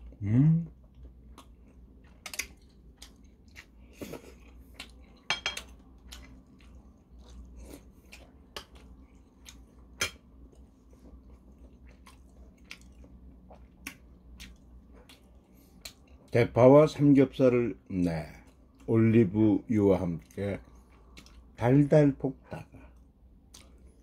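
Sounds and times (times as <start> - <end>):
man chewing: 0.0 - 16.4, 20.2 - 21.6, 22.9 - 24.0.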